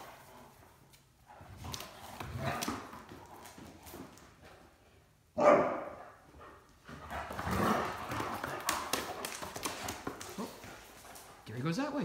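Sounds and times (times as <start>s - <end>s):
dog claws clicking on hard floor: 0.9s - 4.6s, 7.1s - 11.5s.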